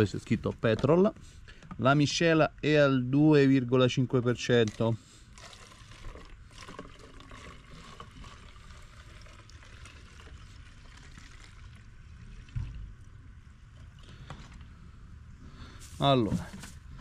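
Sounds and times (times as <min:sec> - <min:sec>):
petrol pouring into bottle: 0:04.6 - 0:12.8.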